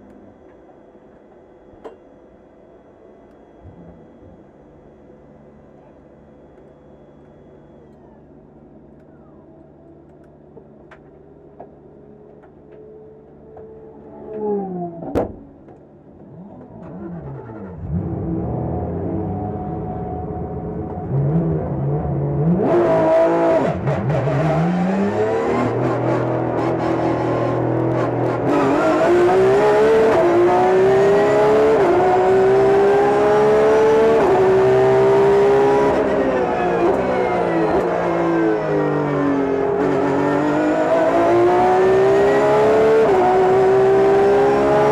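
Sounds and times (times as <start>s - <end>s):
sharp thump: 15.0s - 15.5s
race car engine revving: 16.2s - 44.9s.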